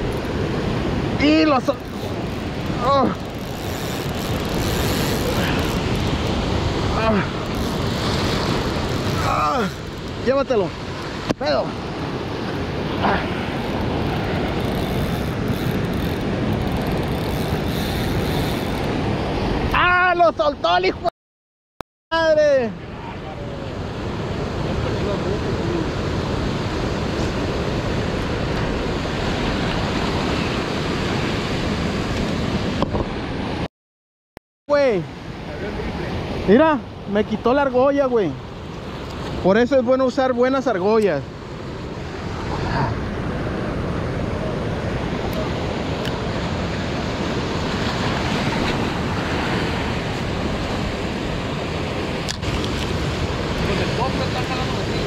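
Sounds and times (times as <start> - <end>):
wind on microphone: 0.0 - 19.7
surf washing on beach: 0.0 - 21.1, 22.2 - 33.7, 34.7 - 55.0.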